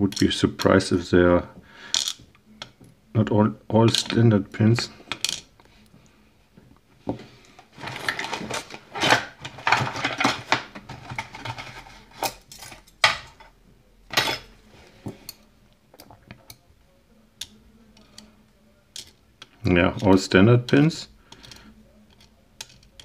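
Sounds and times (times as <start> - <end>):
small metal lock pins clinking: 21.4 - 23.0.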